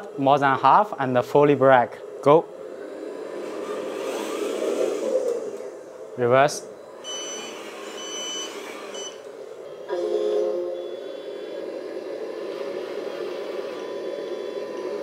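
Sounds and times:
simulated truck engine: 0.0s - 15.0s
high reversing beeps: 6.7s - 15.0s.

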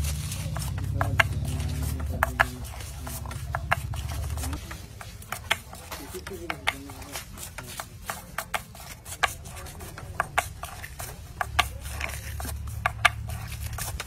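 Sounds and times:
foil and paper crinkling: 0.0s - 0.7s.

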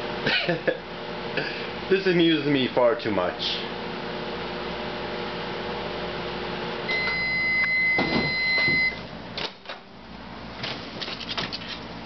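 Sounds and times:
microwave oven humming: 0.0s - 12.0s
microwave end-of-cycle beep: 6.9s - 9.1s.

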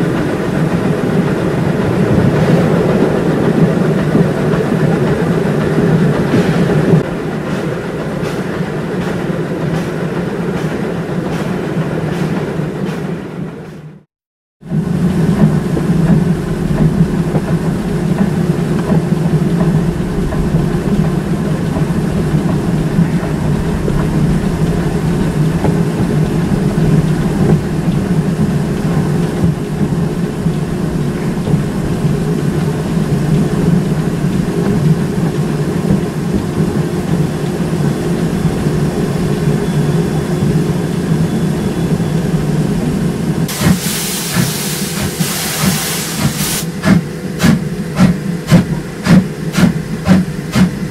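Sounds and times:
steam locomotive rumbling: 0.0s - 50.9s
steam hissing: 14.7s - 50.9s.

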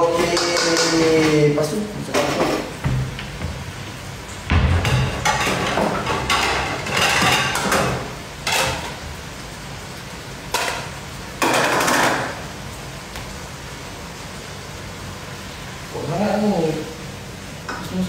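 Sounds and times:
items rattling in kitchen cupboard: 4.5s - 9.0s.

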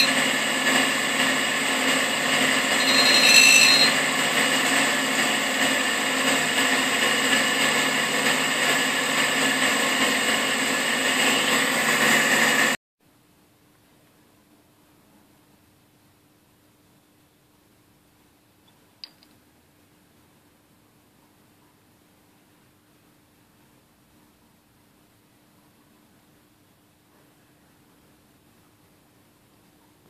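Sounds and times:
high-pitched grinding ringing: 0.0s - 4.7s
grinder wheel spinning: 0.0s - 12.8s.

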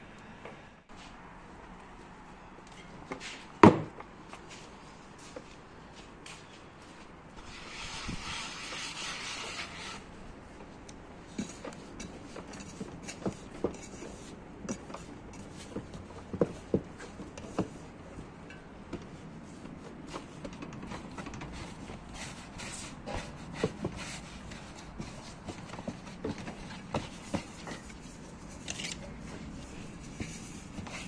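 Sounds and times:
hands kneading dough: 10.6s - 31.0s.

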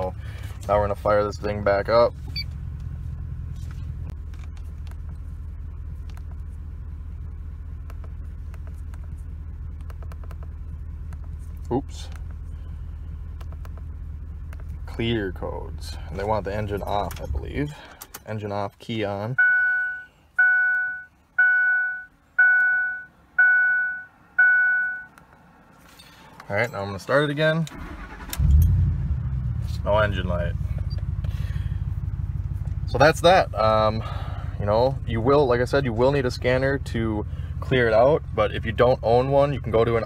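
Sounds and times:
truck engine idling: 0.0s - 18.1s, 27.7s - 40.0s
dashboard warning chime: 19.4s - 25.1s.

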